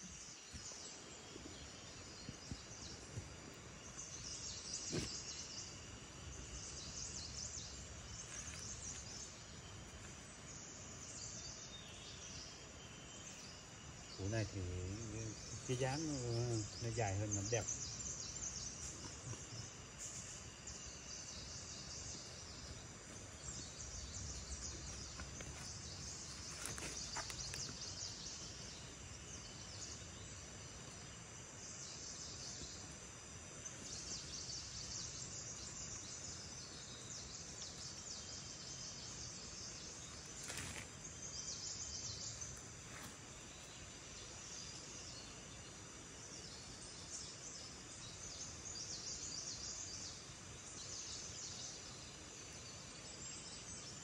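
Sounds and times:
insects chirring: 0:00.0 - 0:54.0
wooden stick scraping soil: 0:24.8 - 0:27.8.

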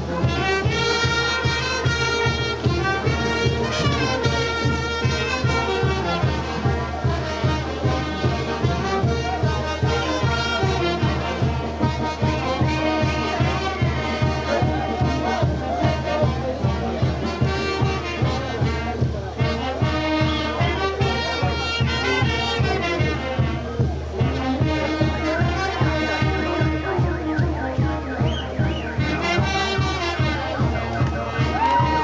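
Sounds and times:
bass drum beat: 0:00.0 - 0:32.0
brass band playing: 0:00.0 - 0:32.0.

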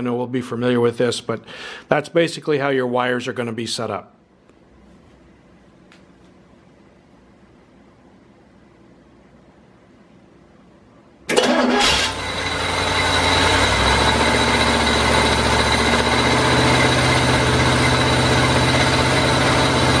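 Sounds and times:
engine starting and running: 0:11.3 - 0:20.0.

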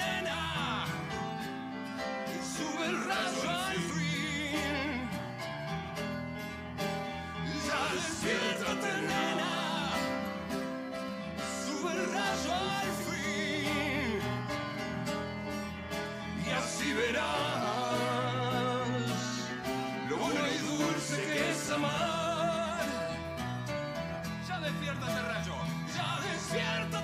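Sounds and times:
man singing with vibrato: 0:00.0 - 0:01.6, 0:02.2 - 0:05.5, 0:07.4 - 0:10.7, 0:11.4 - 0:14.9, 0:16.3 - 0:23.4, 0:24.4 - 0:27.0
strummed acoustic guitar: 0:00.0 - 0:27.0.

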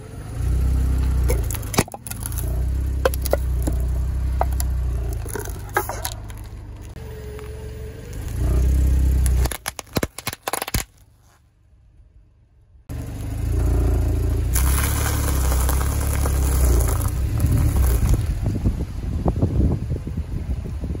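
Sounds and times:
car rolling over asphalt: 0:00.1 - 0:10.2, 0:12.9 - 0:19.6
objects crushed under tyre: 0:01.2 - 0:07.0, 0:08.2 - 0:11.4, 0:14.5 - 0:18.4.

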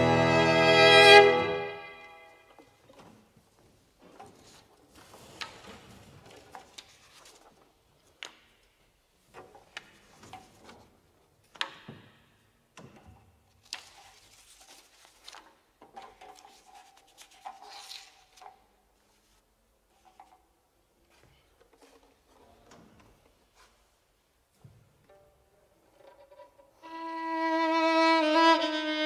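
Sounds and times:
sheet music pages turning: 0:04.4 - 0:07.7, 0:13.6 - 0:19.4.

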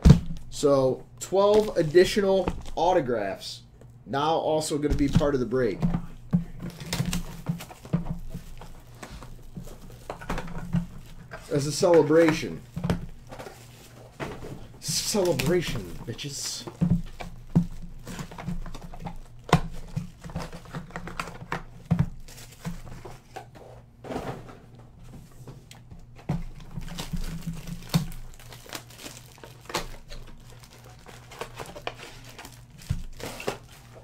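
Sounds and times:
pack wrappers crinkling: 0:01.4 - 0:02.8, 0:06.6 - 0:23.2, 0:26.4 - 0:34.0.

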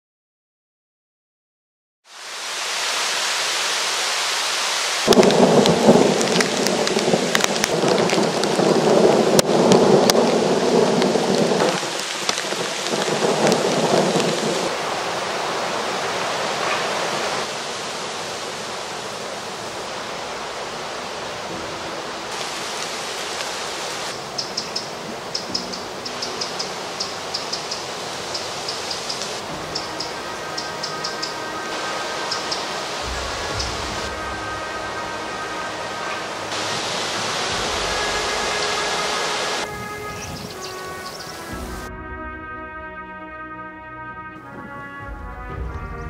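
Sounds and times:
rain falling on leaves: 0:02.1 - 0:41.9
low roll of thunder: 0:05.1 - 0:16.0, 0:32.4 - 0:35.5
small bird calling: 0:24.2 - 0:31.5.

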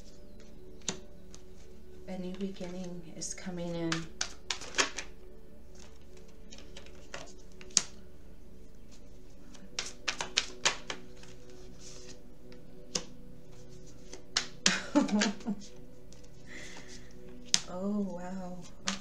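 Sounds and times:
cards snapping and tapping: 0:00.4 - 0:01.5, 0:03.7 - 0:05.1, 0:05.7 - 0:08.0, 0:09.5 - 0:13.2, 0:13.9 - 0:17.7, 0:18.7 - 0:19.0.

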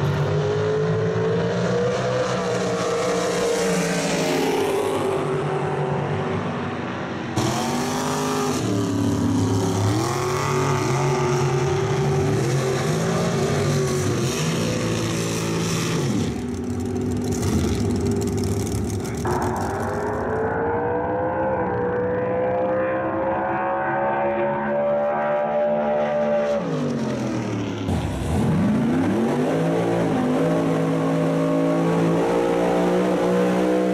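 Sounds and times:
drag racing engines revving: 0:00.0 - 0:33.9
loud harsh noise: 0:17.4 - 0:21.5.

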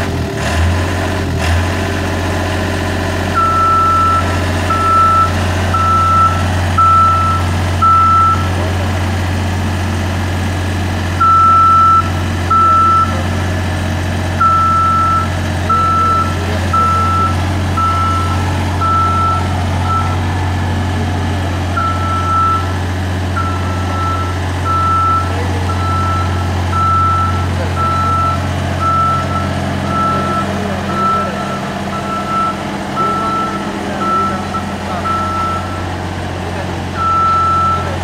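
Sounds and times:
engine humming: 0:00.0 - 0:38.0
motion alarm beeping: 0:03.4 - 0:08.6, 0:11.2 - 0:13.2, 0:14.4 - 0:20.3, 0:21.8 - 0:22.8, 0:23.4 - 0:35.9, 0:37.0 - 0:38.0.

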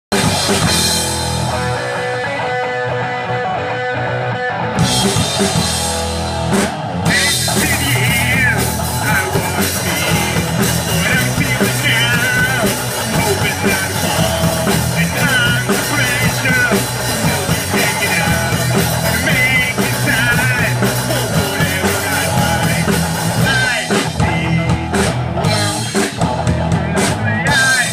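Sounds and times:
punk rock band playing live: 0:00.1 - 0:27.9
person singing into microphone: 0:07.1 - 0:24.9, 0:26.7 - 0:27.9.

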